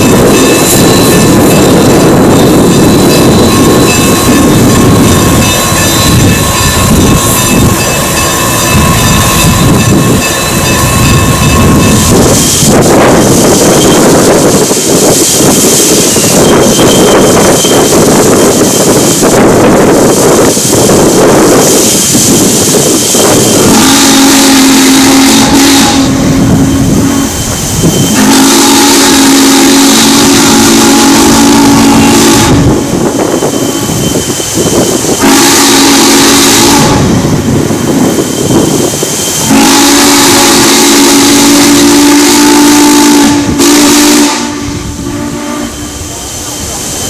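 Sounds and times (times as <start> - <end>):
locomotive hiss: 0.0 - 47.0
steam whistle blasts: 23.6 - 27.4, 28.1 - 32.8, 35.2 - 37.2, 39.4 - 46.2.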